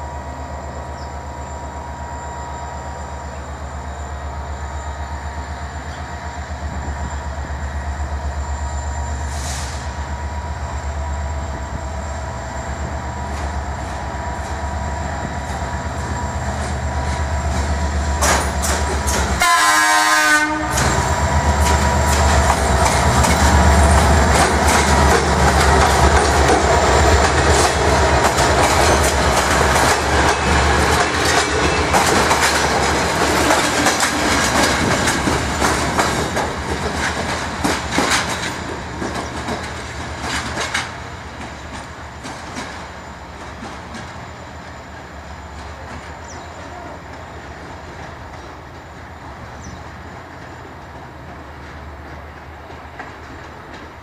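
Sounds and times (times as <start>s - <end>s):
locomotive engine drone: 0.0s - 52.8s
wheels clicking over rail joints: 15.5s - 19.4s, 20.7s - 44.3s
train horn blast: 19.4s - 21.1s.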